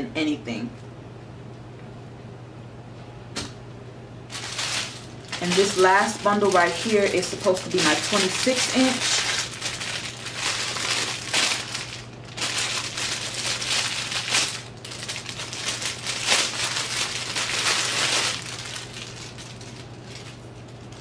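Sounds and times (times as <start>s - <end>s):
plastic packaging crinkling: 4.3s - 21.0s.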